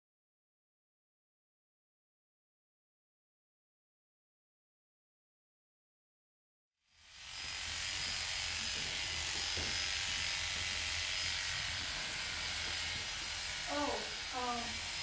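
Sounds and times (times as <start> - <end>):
electric clippers buzzing: 6.9 - 15.0.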